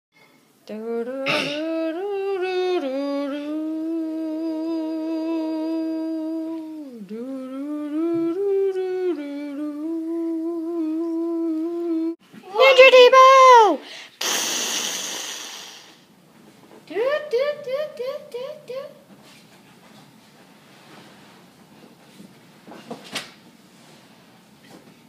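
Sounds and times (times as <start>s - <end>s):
child humming: 1.1s - 12.2s.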